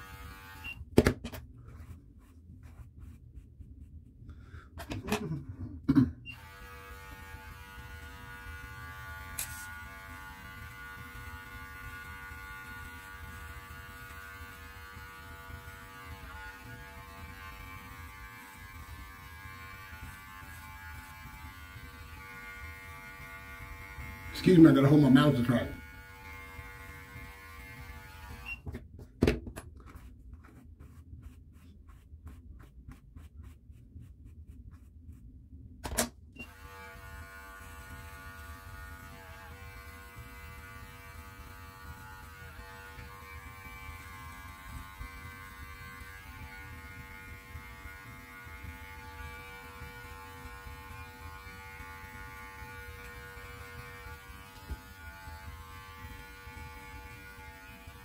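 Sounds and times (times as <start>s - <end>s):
electric clippers humming: 0.0s - 0.8s, 6.3s - 28.6s, 36.4s - 58.0s.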